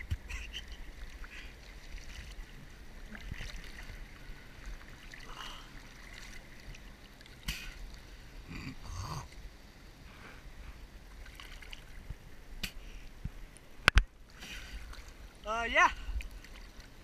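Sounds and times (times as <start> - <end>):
small waves lapping and splashing: 0.0 - 17.0.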